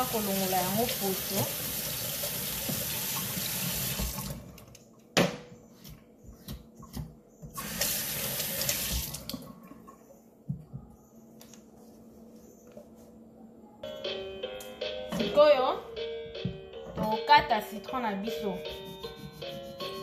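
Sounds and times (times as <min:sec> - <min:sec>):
tap water running into steel sink: 0:00.0 - 0:04.4, 0:07.6 - 0:09.5.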